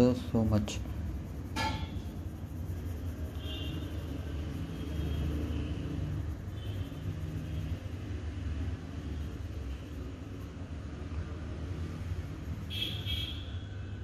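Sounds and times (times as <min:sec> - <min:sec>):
low steady background rumble: 0:00.0 - 0:14.0.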